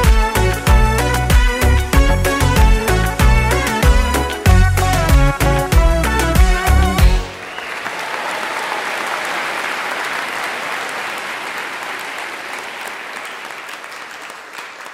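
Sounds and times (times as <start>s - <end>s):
audience applauding: 6.3s - 14.9s.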